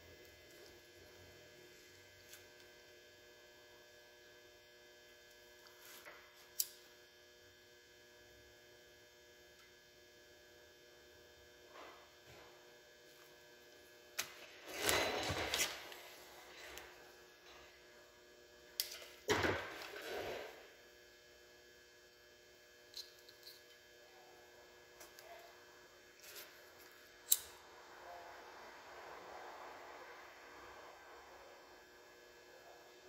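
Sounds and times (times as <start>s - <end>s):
mains hum: 0.0s - 33.0s
wires rustling: 14.2s - 17.6s.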